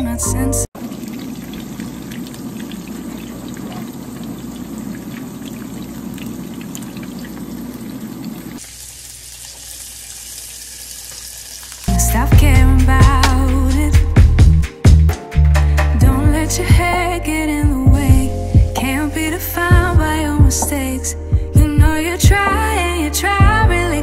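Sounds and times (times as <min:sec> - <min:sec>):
fish sizzling in frying pan: 0:08.6 - 0:11.9
background music with a beat: 0:11.9 - 0:19.0, 0:19.7 - 0:22.6, 0:23.4 - 0:24.0.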